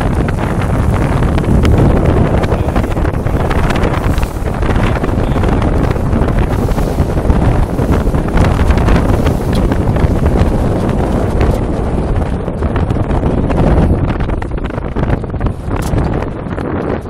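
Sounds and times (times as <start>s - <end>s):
spray slapping the hull: 0.0s - 12.9s
water rushing along a hull: 0.0s - 17.0s
wind buffeting microphone: 0.0s - 17.0s.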